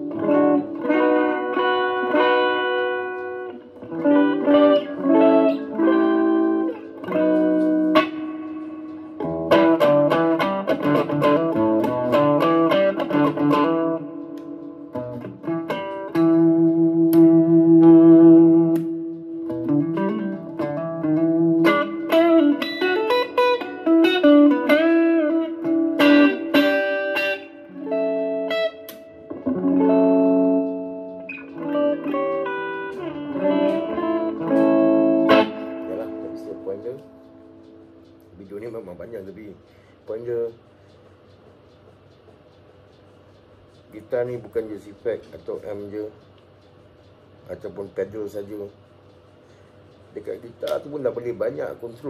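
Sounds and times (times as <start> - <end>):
electric guitar lead lines: 0.0 - 40.7.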